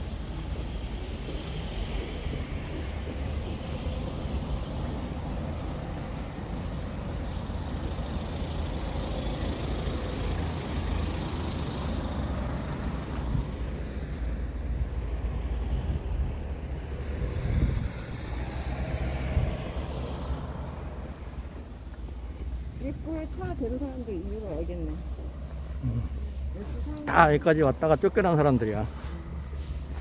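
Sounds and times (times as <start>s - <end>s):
high road noise: 0.0s - 30.0s
vehicle engine and road rumble: 0.0s - 30.0s.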